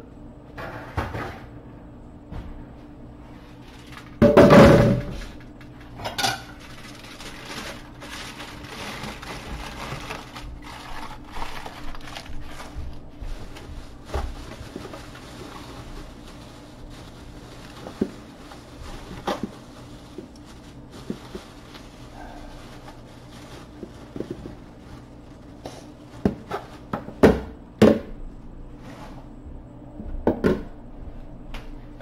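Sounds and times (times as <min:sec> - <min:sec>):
aluminium foil rustling: 0:03.2 - 0:27.2.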